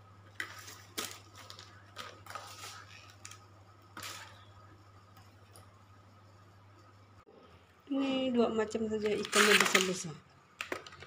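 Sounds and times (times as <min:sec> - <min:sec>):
plastic bags rustling and crinkling: 0:00.3 - 0:04.4, 0:09.0 - 0:11.0.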